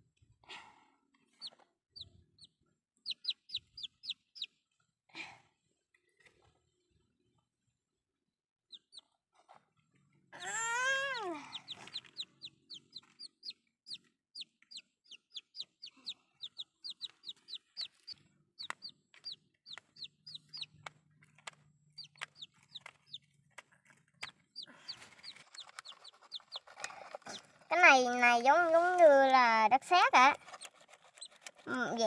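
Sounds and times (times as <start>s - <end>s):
chick peeping: 1.4s - 4.6s, 8.7s - 9.2s, 11.5s - 23.3s, 24.2s - 27.5s.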